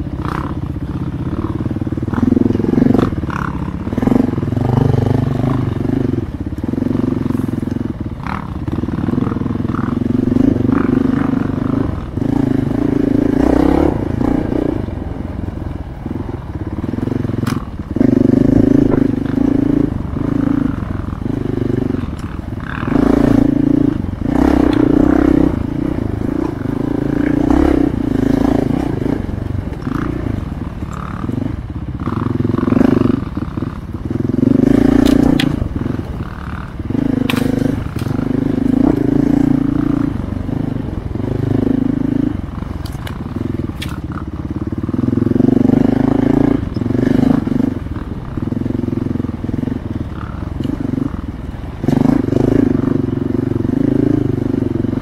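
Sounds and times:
dirt bike engine revving: 0:00.0 - 0:55.0
sharp knocks over rough ground: 0:35.0 - 0:35.8, 0:37.2 - 0:39.5.

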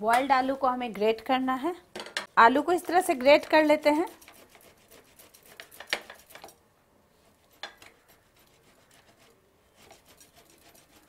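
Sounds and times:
potato rasping on metal grater: 0:03.0 - 0:06.5, 0:07.5 - 0:11.0.

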